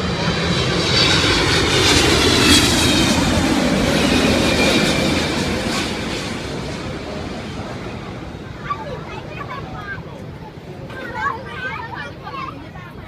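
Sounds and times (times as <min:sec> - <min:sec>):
jet engines passing: 0:00.0 - 0:13.0.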